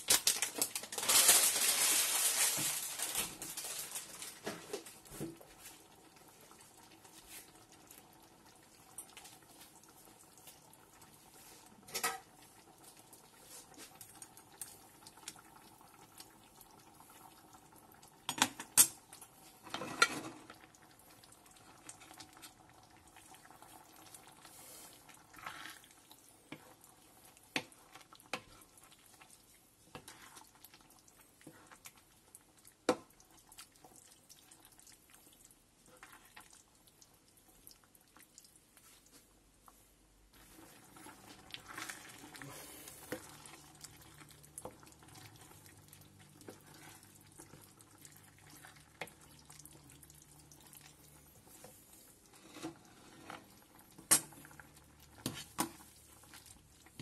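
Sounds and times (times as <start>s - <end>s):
pot of water hissing: 40.4s - 51.6s.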